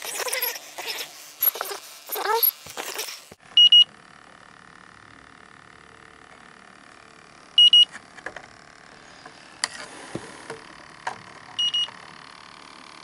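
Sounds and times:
leak detector double beeps: 3.6 - 3.9, 7.6 - 7.9, 11.6 - 12.0.

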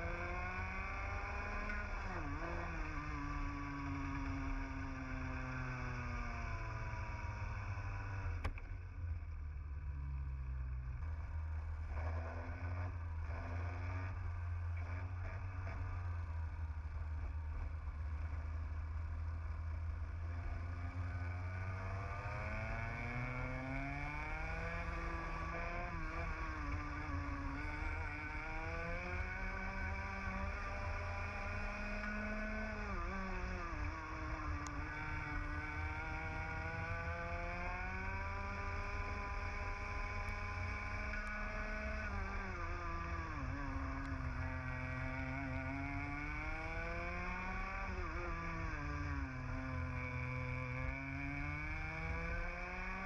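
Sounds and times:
kart engine revving: 0.0 - 8.6, 20.1 - 53.0.

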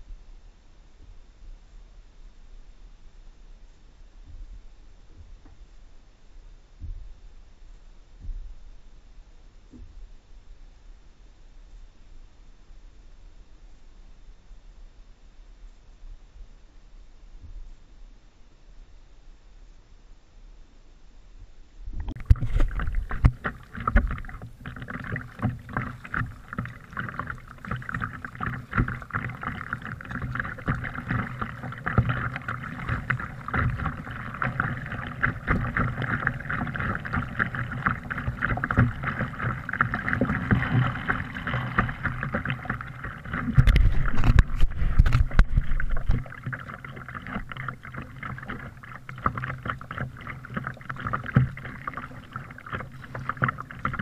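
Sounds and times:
water slapping plastic hull: 22.0 - 54.0
paddle splashing in water: 22.1 - 54.0.

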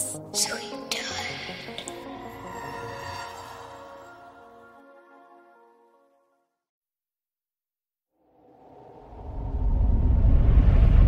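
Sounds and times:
eerie music of sustained tones: 0.0 - 5.5.

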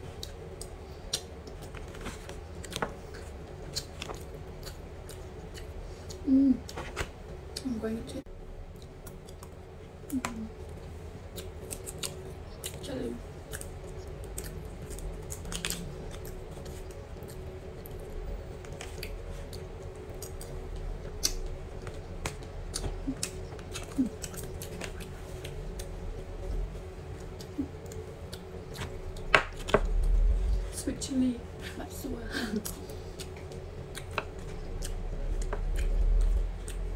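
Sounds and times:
steady low hum: 0.0 - 36.9
chewing and mouth clicks: 32.6 - 36.9.

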